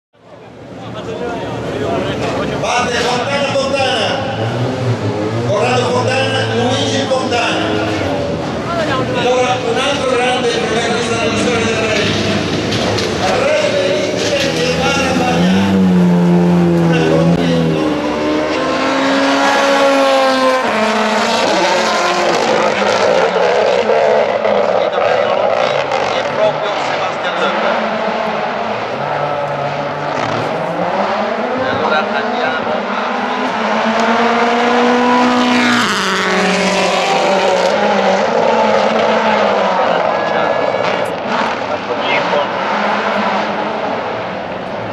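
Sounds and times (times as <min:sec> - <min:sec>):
rally car engine at full throttle: 0:00.2 - 0:44.9.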